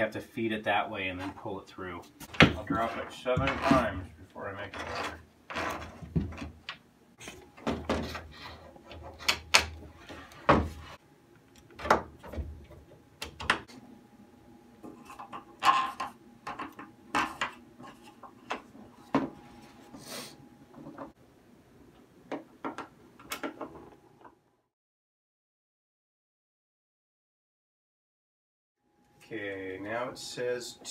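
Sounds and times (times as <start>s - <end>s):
wood scraping: 2.2s - 6.6s
wooden knocks and clunks: 5.8s - 6.6s.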